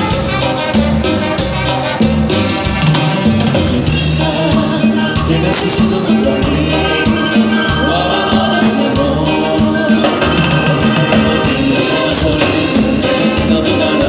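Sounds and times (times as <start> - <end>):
live band playing latin dance music: 0.0 - 14.0
person singing: 3.9 - 14.0.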